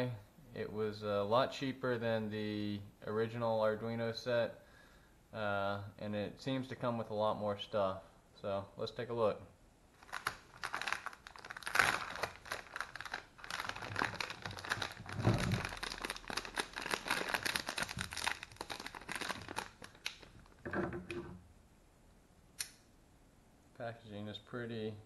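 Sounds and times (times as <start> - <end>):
plastic wrapping crinkling: 9.9 - 20.7.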